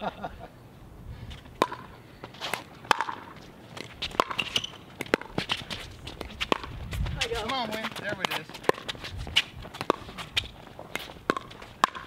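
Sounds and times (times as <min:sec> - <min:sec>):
shoes scuffing on court: 0:01.3 - 0:12.0
ball bouncing on hard court: 0:01.6 - 0:01.9, 0:02.9 - 0:12.0.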